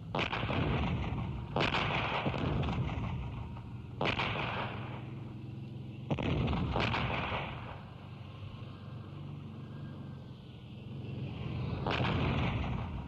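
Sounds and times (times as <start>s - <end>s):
artillery blasts: 0.0s - 8.1s, 11.7s - 13.0s
low continuous rumble: 0.0s - 13.0s.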